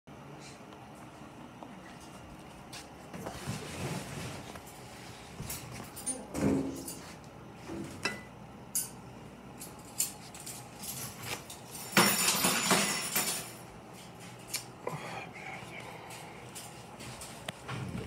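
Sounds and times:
objects clinking on a workbench: 9.6s - 13.6s.

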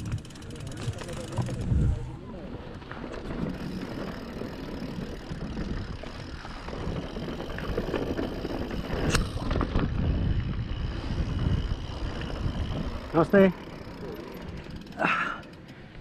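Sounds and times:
tyres rolling on gravel: 0.0s - 15.7s
bike rattling: 0.0s - 16.0s
wind on microphone: 1.4s - 2.3s, 5.0s - 13.2s.

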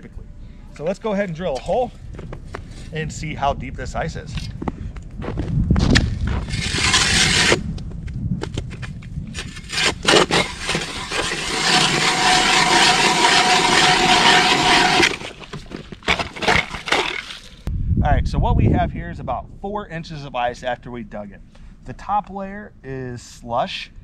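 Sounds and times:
ice auger grinding through ice: 6.4s - 7.6s, 9.3s - 17.6s.

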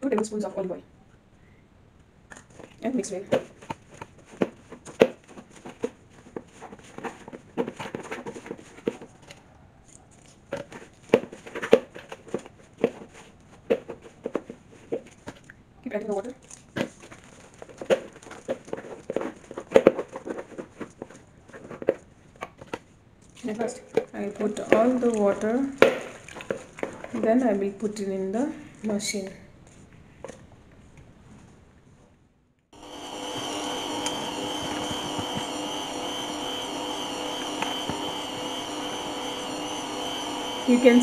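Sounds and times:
spoon scraping plastic bowl: 23.5s - 27.6s
stand mixer motor whine: 32.8s - 41.0s.

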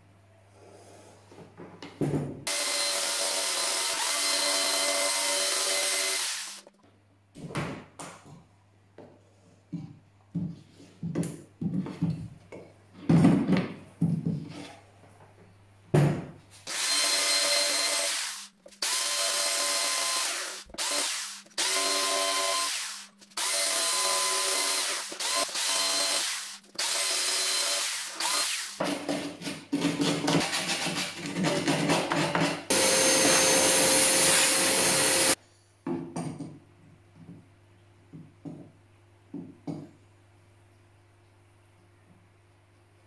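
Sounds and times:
jigsaw cutting: 2.5s - 6.6s, 16.7s - 28.8s, 32.7s - 35.4s
router knocking and scraping on wood: 27.0s - 35.4s.

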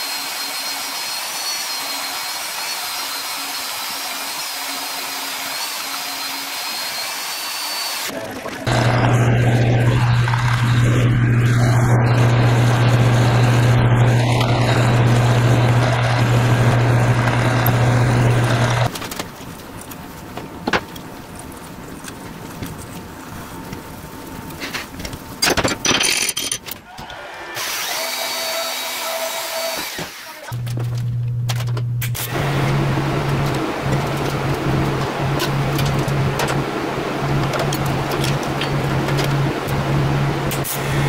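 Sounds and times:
handheld grinder: 0.0s - 8.1s, 8.7s - 18.9s, 27.6s - 30.6s
lathe drilling steel: 0.0s - 8.1s, 8.7s - 18.9s, 27.5s - 30.6s.

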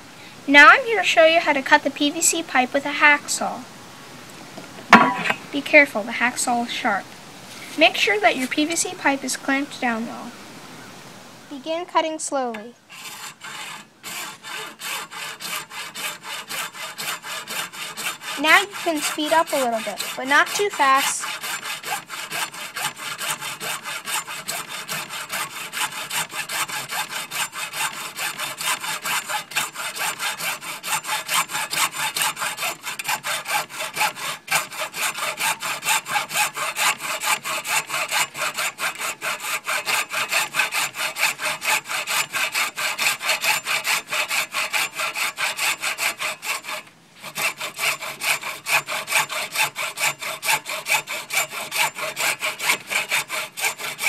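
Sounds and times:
hacksaw cutting plastic pipe: 12.9s - 54.0s.

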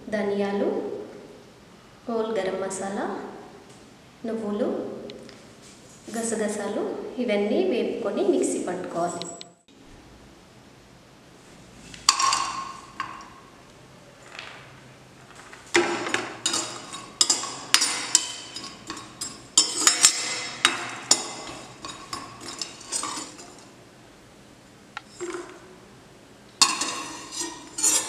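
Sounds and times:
steel ladle clinking and scraping pan: 12.1s - 13.4s, 15.8s - 23.8s, 25.0s - 25.6s, 26.6s - 28.0s.

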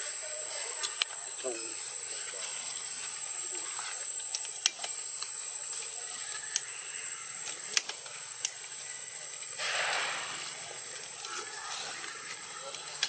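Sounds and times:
background hiss: 0.0s - 13.0s
high-pitched whine: 0.0s - 13.0s
burst of rushing noise: 9.6s - 10.6s.

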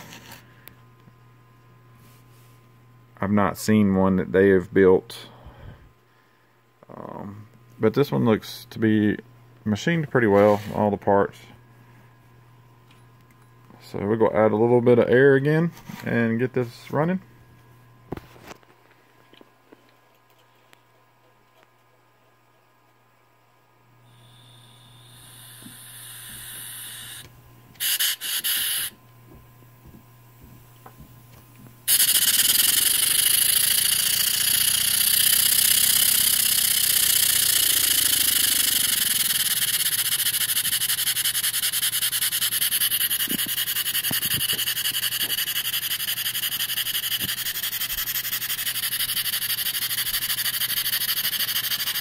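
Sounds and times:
air hissing: 24.1s - 29.0s, 31.9s - 52.0s
steam engine exhaust chuffing: 24.1s - 29.0s, 31.9s - 52.0s.

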